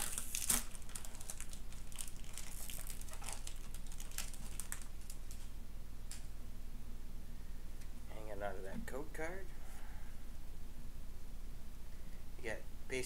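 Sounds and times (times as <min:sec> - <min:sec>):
foil wrapper crinkling: 0:00.0 - 0:06.2.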